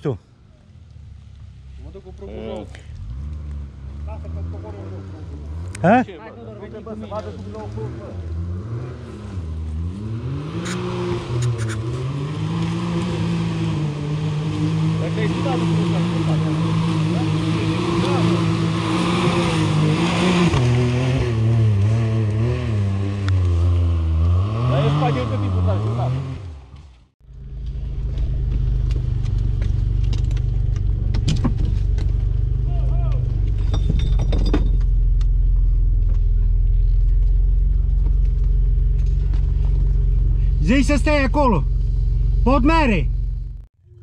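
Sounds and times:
engine revving: 2.0 - 44.0
vehicle engine running: 25.6 - 44.0.

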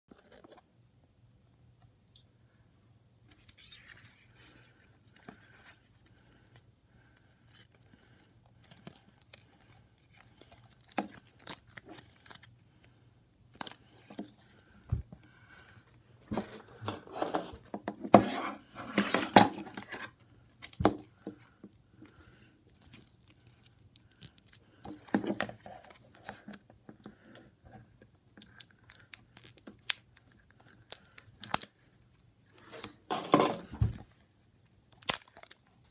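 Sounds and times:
plastic wrapper crinkling: 8.6 - 12.6, 34.6 - 35.9.

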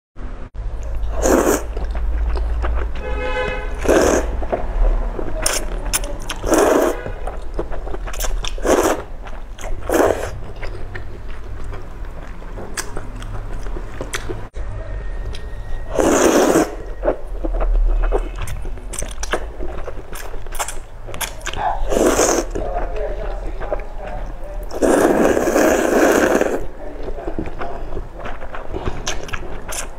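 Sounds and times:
wet chewing: 0.7 - 14.6, 15.2 - 29.9
slurping noodles: 1.0 - 2.6, 3.7 - 4.6, 5.4 - 10.7, 15.8 - 20.8, 21.6 - 22.8, 24.6 - 26.7.

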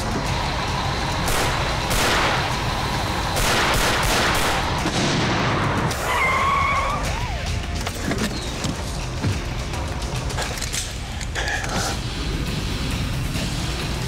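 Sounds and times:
vehicle engine: 0.0 - 5.9
pistol shots: 1.3 - 2.6, 3.4 - 5.2.

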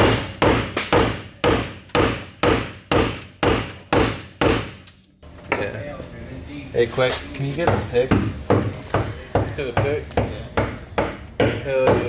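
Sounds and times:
hammer striking metal: 0.0 - 4.8, 7.6 - 10.0.

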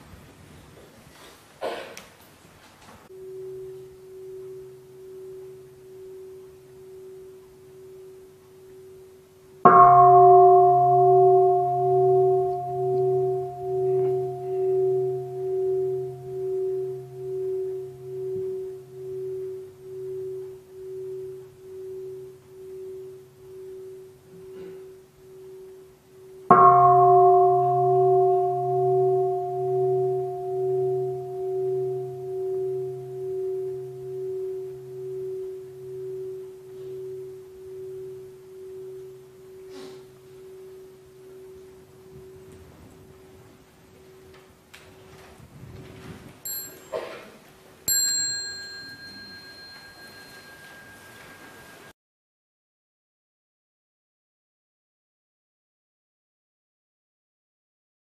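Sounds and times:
bowl bell ringing: 3.1 - 44.4, 46.4 - 47.3, 47.9 - 52.0.

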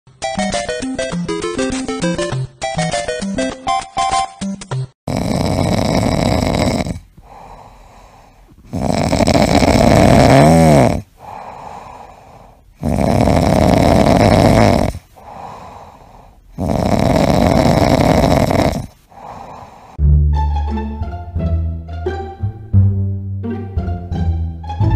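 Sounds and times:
music: 0.1 - 4.9, 20.0 - 24.9
cat snoring: 5.1 - 20.0
cat breathing: 5.2 - 20.0
whistling snore: 8.7 - 11.0, 12.8 - 15.0, 16.6 - 18.9.

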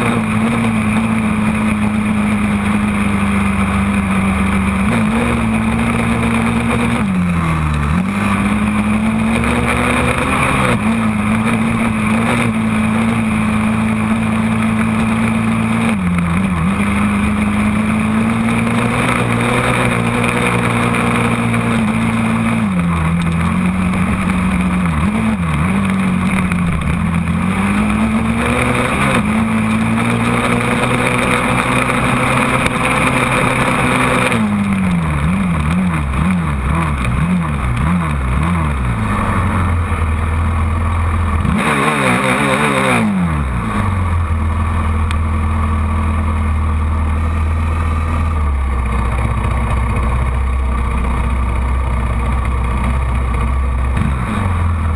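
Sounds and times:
quad engine revving: 0.0 - 54.9
quad engine idling: 43.2 - 54.9.

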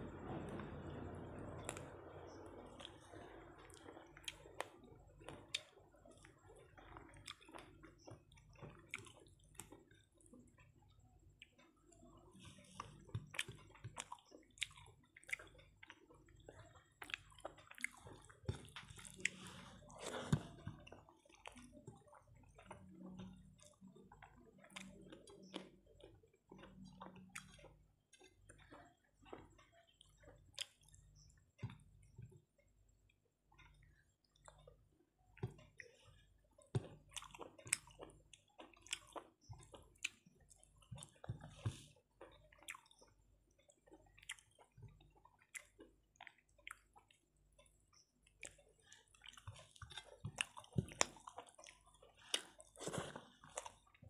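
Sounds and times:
chewing and lip smacks: 2.8 - 32.3, 33.1 - 54.0
rice squishing mixed by hand: 48.4 - 54.0.

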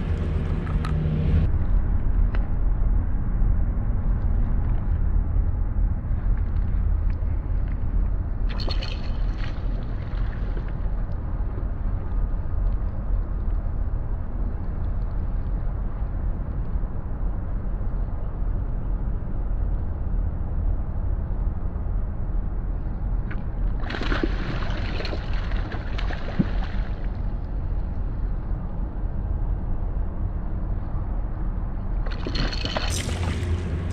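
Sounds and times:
fish splashing in water: 8.5 - 10.6, 23.8 - 27.2, 32.1 - 33.8
river water rumbling: 8.5 - 10.9, 23.7 - 28.5, 32.0 - 33.9.

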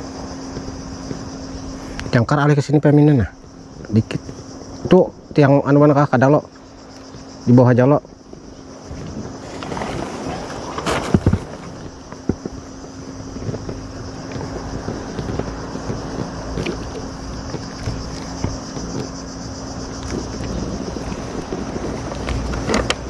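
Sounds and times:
faint steady hum: 0.0 - 23.0
waves lapping against boat hull: 6.4 - 23.0
wind over microphone: 6.8 - 23.0
gear knocks and clicks: 10.6 - 23.0.

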